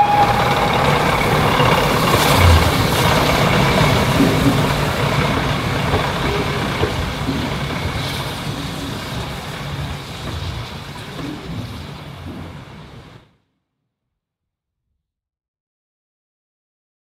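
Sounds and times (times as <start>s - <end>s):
diesel train engines: 0.0s - 13.2s
wheels on rails: 0.0s - 13.2s.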